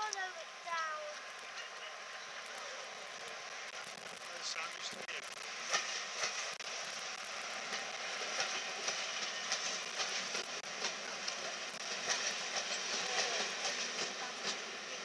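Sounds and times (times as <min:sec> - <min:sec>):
train wheels clattering over rail joints: 0:05.2 - 0:15.0.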